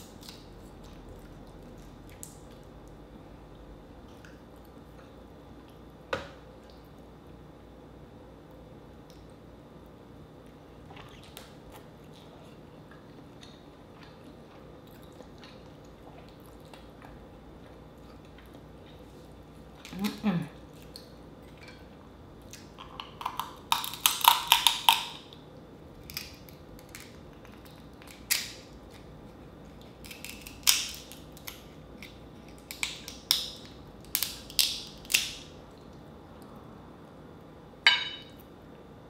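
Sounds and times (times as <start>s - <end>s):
crab shell cracking: 22.6s - 25.4s, 26.0s - 29.1s, 30.0s - 35.5s.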